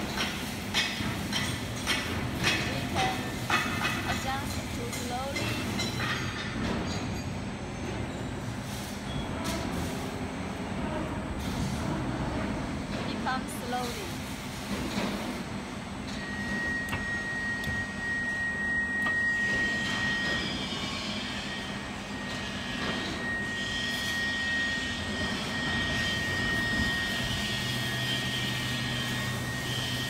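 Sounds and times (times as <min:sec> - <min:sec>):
high-pitched whine: 0:16.1 - 0:30.0.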